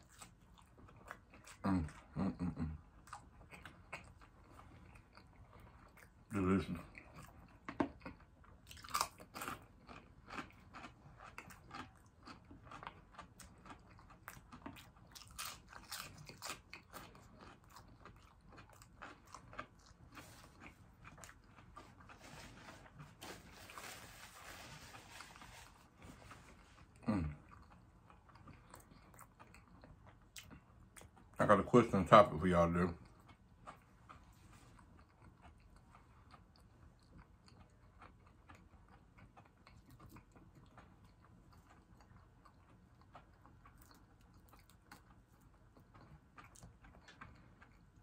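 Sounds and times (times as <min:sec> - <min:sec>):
chewing: 0:00.0 - 0:48.0.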